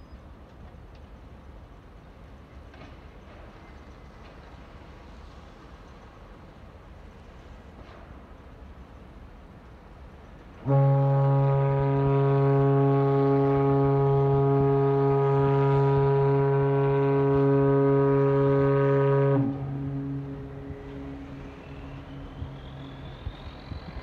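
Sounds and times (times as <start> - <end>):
deep ship horn blast: 10.6 - 22.7.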